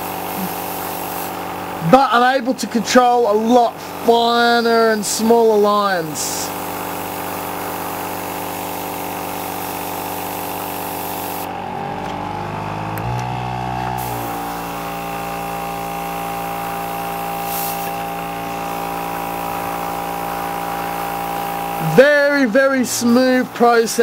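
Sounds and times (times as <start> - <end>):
air hissing from airbrush: 0.0 - 1.8, 3.7 - 11.5, 14.0 - 22.2
compressor humming: 0.0 - 24.0.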